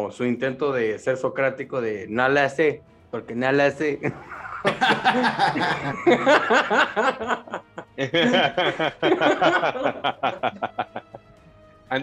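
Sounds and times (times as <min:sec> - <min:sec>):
men laughing: 0:04.0 - 0:11.3.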